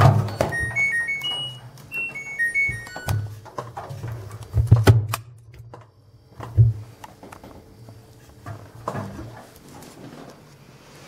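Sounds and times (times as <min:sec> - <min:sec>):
laundry handling knocks and thumps: 0:00.0 - 0:00.9.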